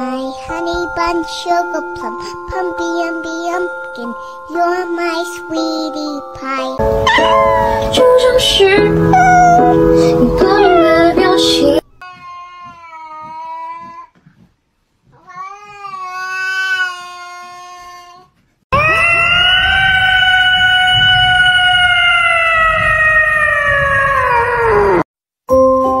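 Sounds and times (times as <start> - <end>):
cats meowing: 6.9 - 8.2, 9.0 - 9.8, 18.8 - 25.0
cat yowling: 7.0 - 7.9, 9.1 - 9.8, 18.8 - 25.0.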